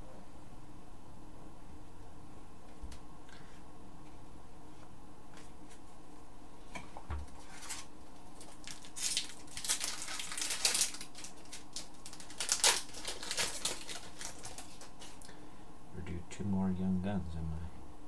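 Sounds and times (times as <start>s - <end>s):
foil card wrappers crinkling: 7.3s - 15.3s.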